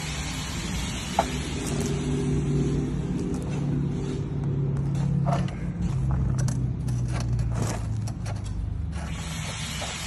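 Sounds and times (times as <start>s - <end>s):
miter saw cutting brick: 8.9s - 10.0s.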